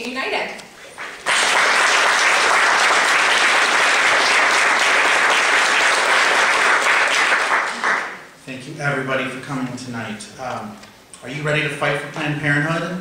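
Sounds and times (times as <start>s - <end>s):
audience applauding: 0.9s - 8.3s.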